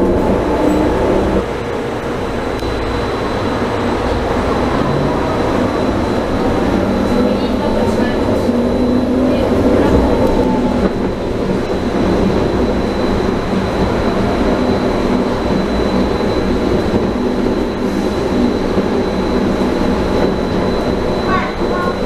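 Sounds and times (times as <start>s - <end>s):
high-pitched train whine: 0.0s - 22.0s
train rolling rumble: 0.0s - 22.0s.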